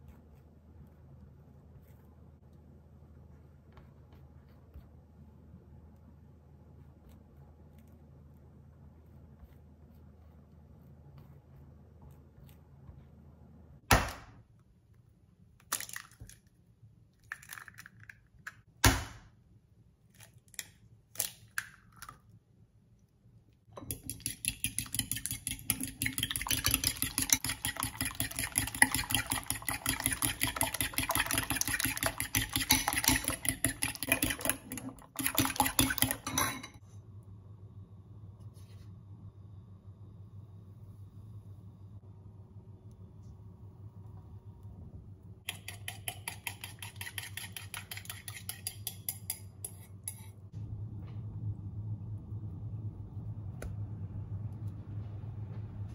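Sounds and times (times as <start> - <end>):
faint steady hum: 0.0 - 18.7, 19.3 - 55.9
fork beating eggs in bowl: 23.8 - 36.6, 45.4 - 50.4.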